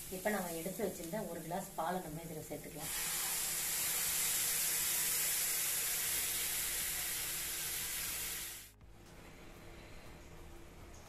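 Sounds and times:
loud sizzling hiss: 0.0 - 1.8, 2.6 - 8.8.

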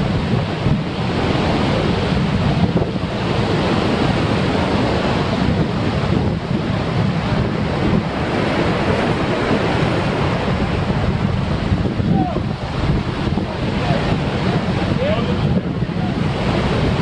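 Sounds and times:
surf breaking on rocks: 0.0 - 17.0
wind buffeting microphone: 0.0 - 17.0.

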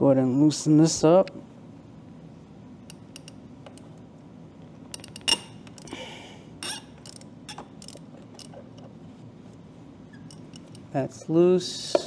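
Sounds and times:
allen key metal clicks: 2.9 - 3.9, 4.9 - 6.0, 6.6 - 8.8, 10.2 - 10.9.

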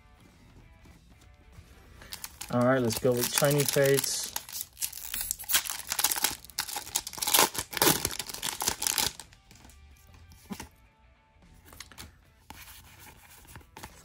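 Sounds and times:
foil wrapper tearing and crinkling: 2.0 - 9.3.

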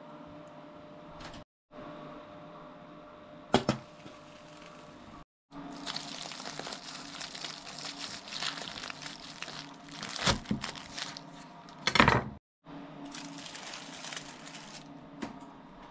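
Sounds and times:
aluminium foil crinkling: 5.7 - 11.5, 13.1 - 14.9
loud crunches: 5.8 - 11.4.

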